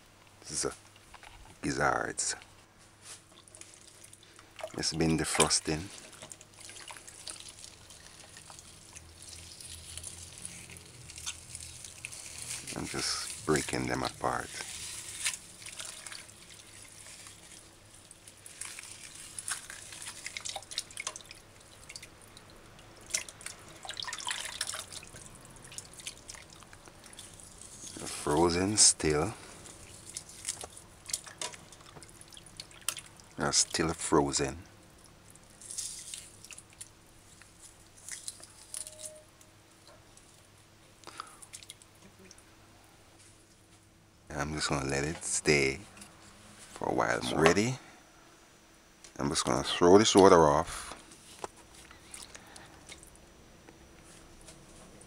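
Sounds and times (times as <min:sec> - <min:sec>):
low steady hum: 0:00.0 - 0:55.0
water sloshing and splashing in a pot: 0:03.0 - 0:34.2, 0:34.9 - 0:39.1, 0:41.3 - 0:42.0, 0:51.6 - 0:53.2.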